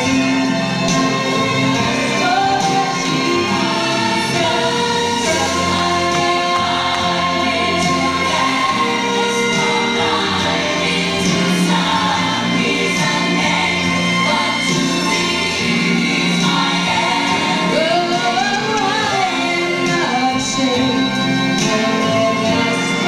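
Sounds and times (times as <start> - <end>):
sustained musical accompaniment: 0.0 - 23.0
woman singing into microphone: 16.2 - 23.0.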